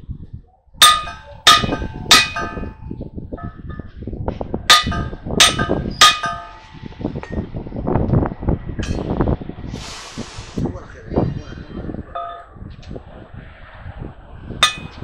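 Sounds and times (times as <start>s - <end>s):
hammer ringing on steel: 0.8s - 3.9s, 4.7s - 7.4s, 14.6s - 15.0s.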